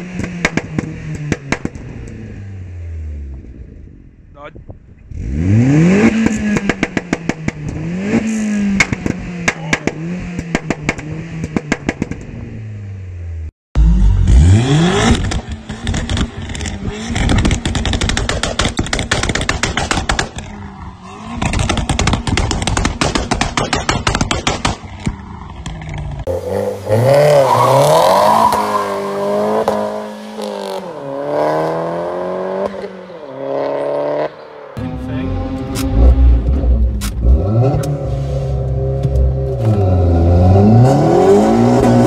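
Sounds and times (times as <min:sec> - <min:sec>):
exhaust popping and banging: 0:00.1 - 0:02.2, 0:06.1 - 0:07.9, 0:08.7 - 0:12.4, 0:15.0 - 0:26.3
car engine revving: 0:05.0 - 0:42.0.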